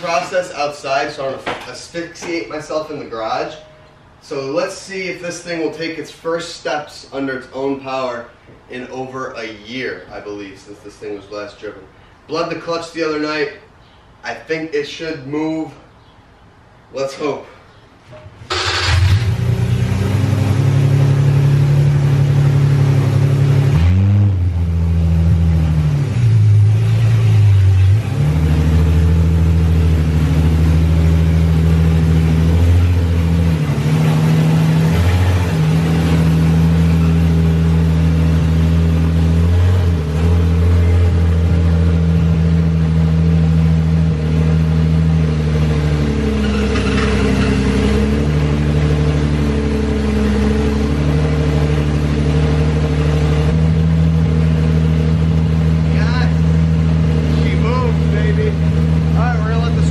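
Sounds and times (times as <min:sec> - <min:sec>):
car engine running loudly: 0:18.5 - 0:59.9.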